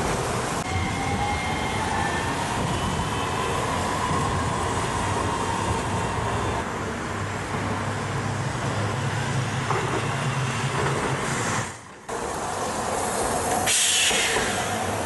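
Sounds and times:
city traffic hum: 0.0 - 15.0
streetcar rolling on rails: 0.0 - 15.0
loud hiss burst: 13.6 - 15.0.

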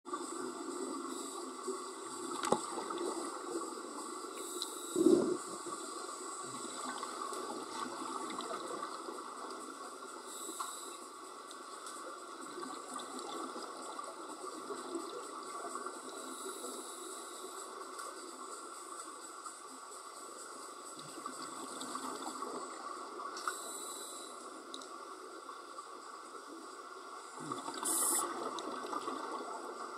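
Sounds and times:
underwater water hiss: 0.1 - 29.9.

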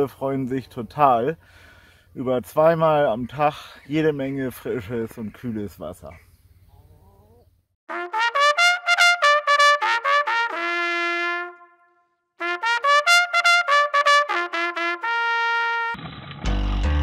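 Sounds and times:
trumpet fanfare: 7.9 - 16.0.

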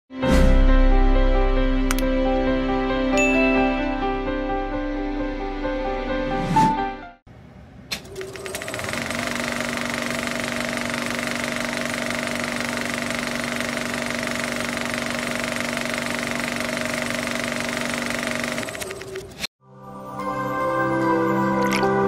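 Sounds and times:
loud buzzing rattle: 8.1 - 19.4.

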